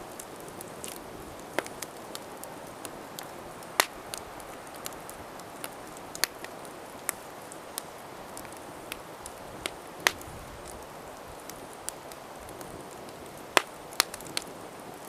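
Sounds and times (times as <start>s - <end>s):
campfire crackling: 0.0s - 15.0s.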